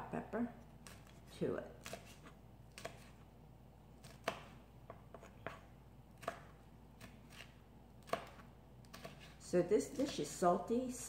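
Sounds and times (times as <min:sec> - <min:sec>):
knife chopping on cutting board: 0:01.8 - 0:03.2, 0:04.0 - 0:10.2.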